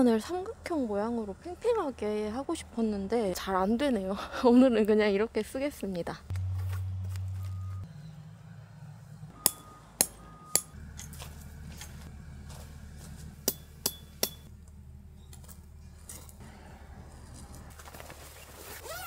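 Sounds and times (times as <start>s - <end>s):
hammer striking metal tent pegs: 13.4s - 14.5s.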